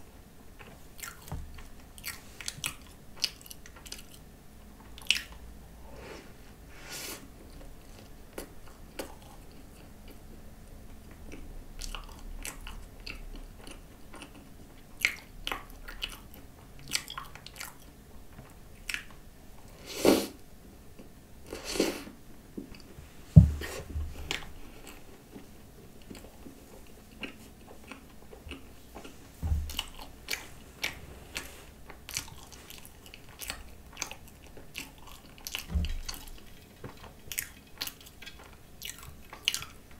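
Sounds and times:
low thump: 0:23.4 - 0:24.2, 0:29.4 - 0:29.8.

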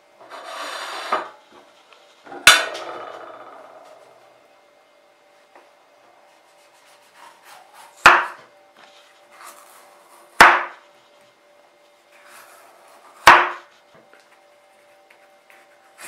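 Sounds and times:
knife scraping through coconut: 0:00.2 - 0:01.3, 0:06.6 - 0:08.0, 0:09.3 - 0:10.3.

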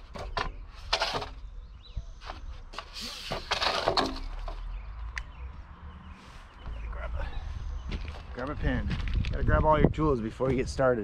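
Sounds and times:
plastic pipes knocking and scraping: 0:00.0 - 0:01.5, 0:02.2 - 0:04.8.

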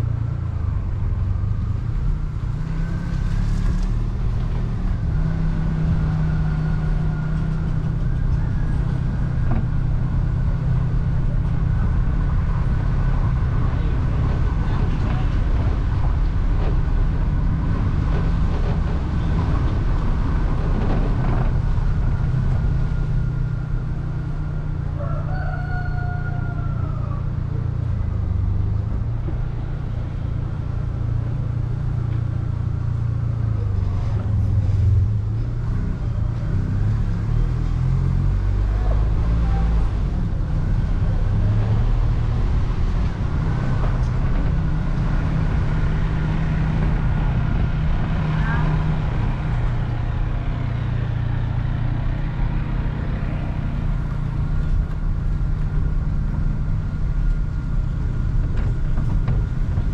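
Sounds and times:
vehicle engine rumble: 0:00.0 - 0:59.9
rooster crowing: 0:24.9 - 0:27.4.

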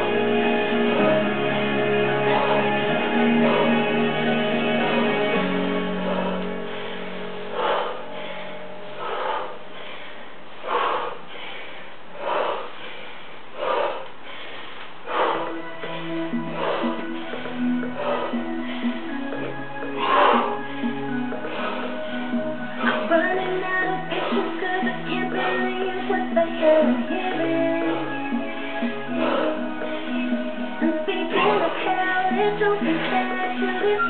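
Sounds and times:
guitar and singing music: 0:00.0 - 0:07.0, 0:15.8 - 0:34.0
hard exhalations: 0:00.0 - 0:33.7.

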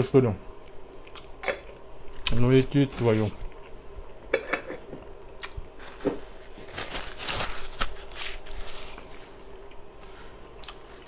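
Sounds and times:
faint steady hum: 0:00.0 - 0:11.0
chewing and lip-smacking: 0:10.5 - 0:11.0.

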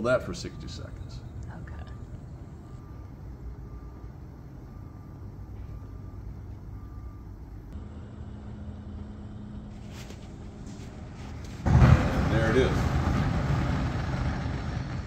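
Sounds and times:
steady low hum: 0:00.0 - 0:15.0
gas burner flame rumbling: 0:07.7 - 0:15.0.

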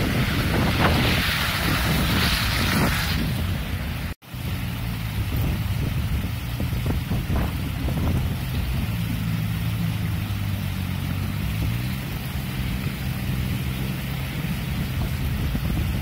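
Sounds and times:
constant hiss: 0:00.0 - 0:16.0
motor engine humming: 0:03.4 - 0:16.0.

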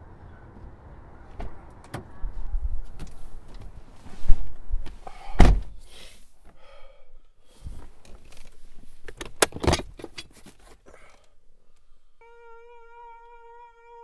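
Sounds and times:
car door slamming: 0:05.3 - 0:05.8.

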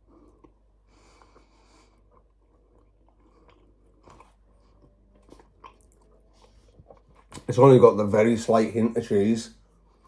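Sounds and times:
faint chewing: 0:00.0 - 0:07.6.

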